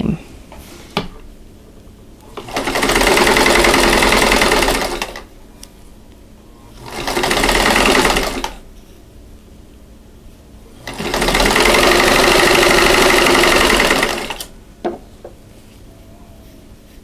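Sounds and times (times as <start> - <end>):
sewing machine stitching: 2.3 - 5.3, 6.8 - 8.6, 10.8 - 14.5.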